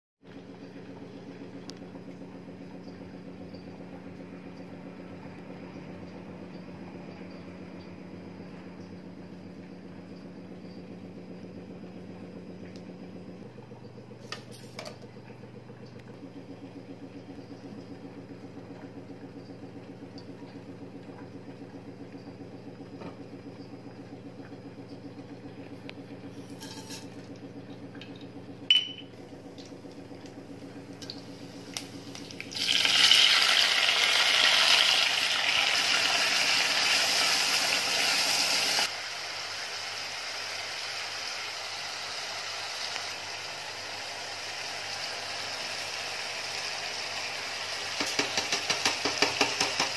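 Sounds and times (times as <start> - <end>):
low fluttering hum: 0.3 - 35.5
vegetables sizzling in hot oil: 31.3 - 49.9.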